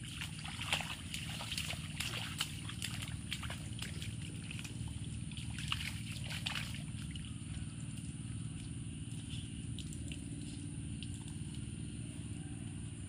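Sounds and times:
children splashing in puddle: 0.0s - 8.2s
low background rumble: 0.0s - 13.0s.

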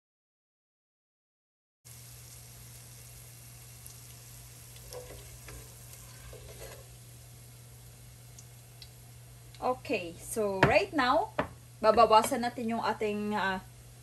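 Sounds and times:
hot oil sizzling: 1.9s - 12.4s
steady low hum: 2.2s - 14.0s
spoon scraping metal pot: 4.9s - 6.9s.

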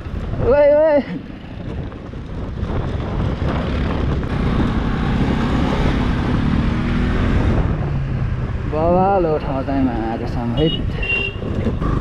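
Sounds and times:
wind on microphone: 0.0s - 9.2s, 10.4s - 12.0s
motorcycle engine running: 1.2s - 8.2s, 11.0s - 12.0s.

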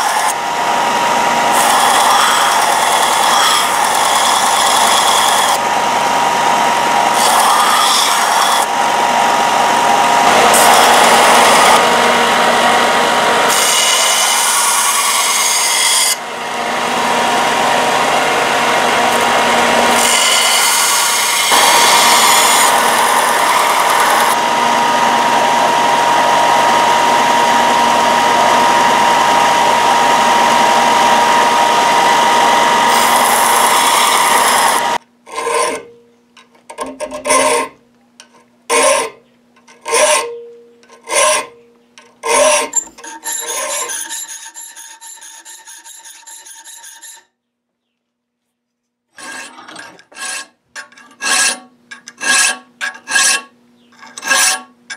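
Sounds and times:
belt grinder whine: 0.0s - 35.8s, 42.2s - 47.2s.

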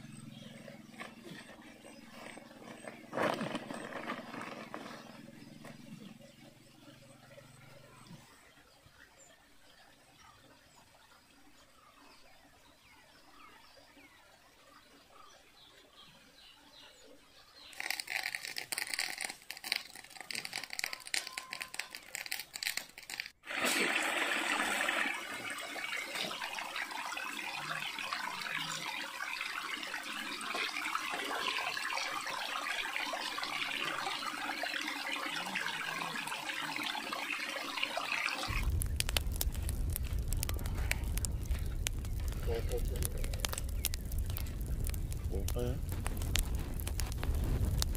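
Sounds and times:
irregular crackling noise: 0.0s - 6.4s, 17.6s - 23.4s, 38.3s - 47.9s
stream trickling and flowing: 0.0s - 47.1s.

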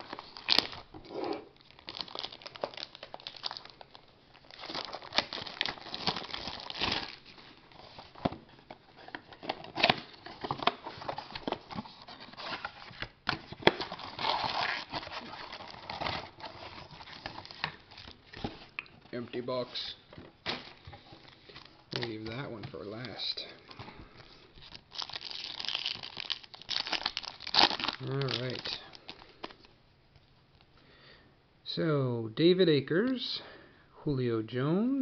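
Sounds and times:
plastic wrap crinkling and tearing: 0.0s - 18.8s, 20.4s - 29.6s.

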